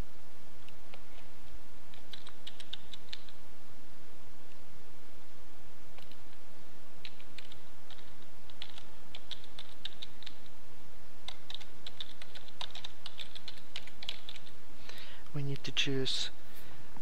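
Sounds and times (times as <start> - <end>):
computer keyboard typing: 1.9 - 3.4, 6.0 - 6.3, 7.0 - 10.5, 11.2 - 14.6.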